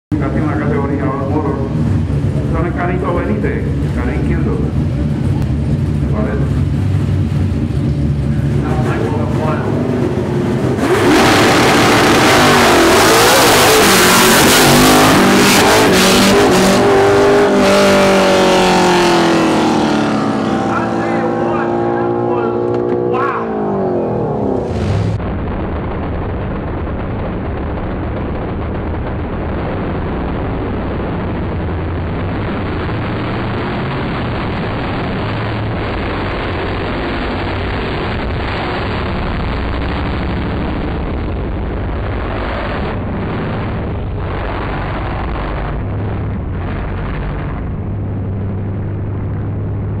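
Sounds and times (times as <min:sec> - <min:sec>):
race car engine at full throttle: 0:00.1 - 0:50.0.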